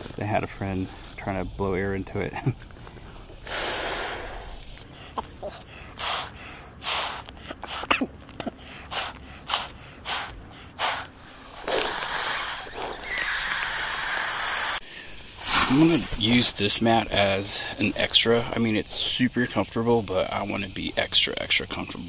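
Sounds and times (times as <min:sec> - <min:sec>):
breath puffs into pump sack: 0:02.8 - 0:16.3
rushing air hiss: 0:03.1 - 0:07.9, 0:08.6 - 0:22.0.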